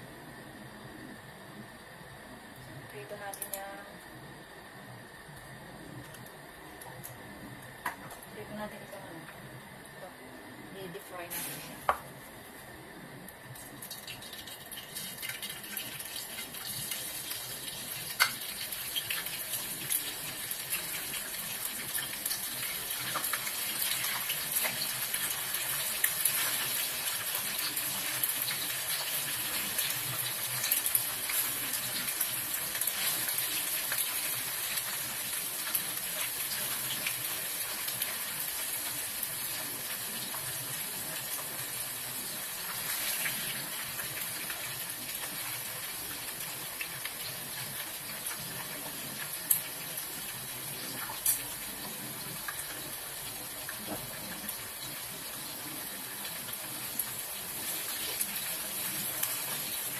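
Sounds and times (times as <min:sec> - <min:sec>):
food sizzling in hot oil: 0:10.8 - 0:12.1, 0:13.4 - 0:59.9
crackling oil spatters: 0:13.6 - 0:51.8.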